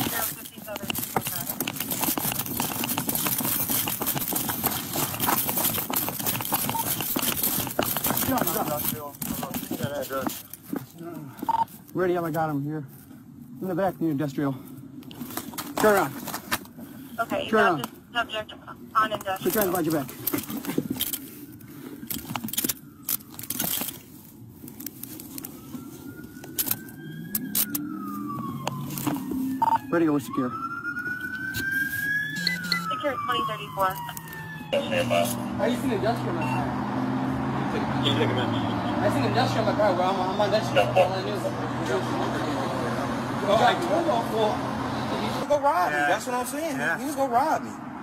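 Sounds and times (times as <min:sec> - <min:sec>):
faint siren rising: 0:00.0 - 0:09.9, 0:22.5 - 0:45.5
gear knocking against body camera: 0:00.0 - 0:11.6
running footsteps on pavement: 0:00.0 - 0:12.5
handcuffs clinking and ratcheting: 0:00.1 - 0:09.6, 0:20.2 - 0:21.3, 0:22.0 - 0:24.0, 0:26.5 - 0:27.9.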